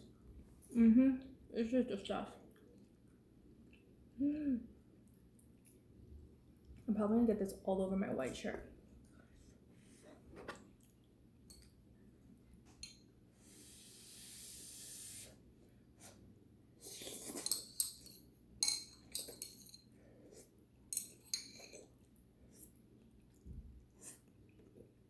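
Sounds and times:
soft breathy hiss: 13.3 - 17.2.

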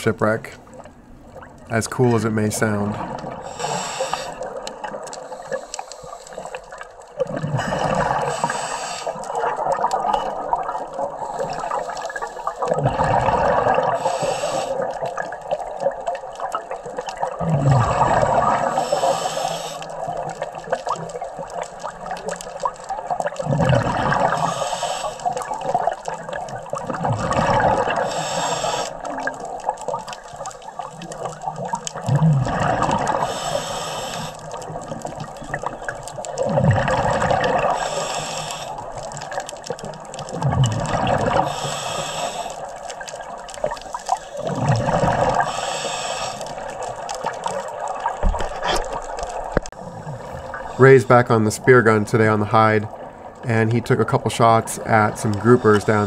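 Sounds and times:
bubbling on exhale: 2.9 - 50.8
regulator hiss on inhale: 3.4 - 4.6, 5.2 - 6.9, 7.7 - 9.3, 11.1 - 12.8, 13.9 - 15.0, 18.4 - 20.1, 24.3 - 25.5, 28.0 - 29.1, 33.1 - 34.6, 37.6 - 39.0, 41.3 - 43.1, 45.3 - 46.8.

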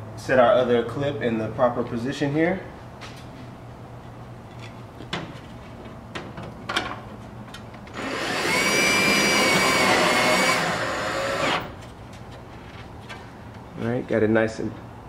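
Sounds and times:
cordless drill whining: 7.9 - 11.8.

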